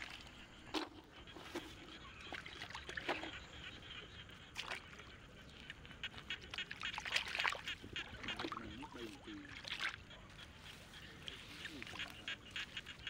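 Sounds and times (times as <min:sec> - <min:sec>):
water splashing: 0:05.6 - 0:10.1.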